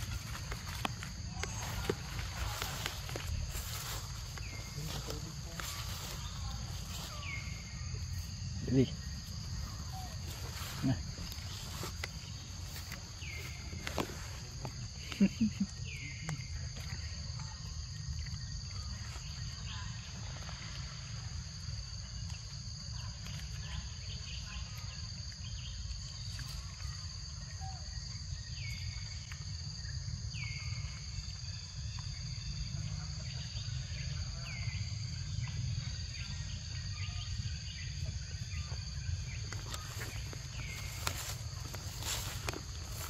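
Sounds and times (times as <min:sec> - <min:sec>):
footsteps through leaves: 0:00.0 - 0:07.7, 0:09.3 - 0:14.7, 0:39.6 - 0:43.0
forest insects droning: 0:00.0 - 0:43.0.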